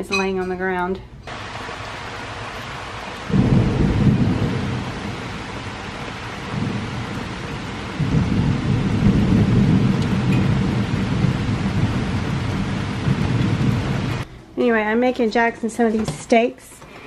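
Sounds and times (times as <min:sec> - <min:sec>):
steady rain falling: 0:01.3 - 0:14.2
thunder rumbling: 0:01.3 - 0:14.3.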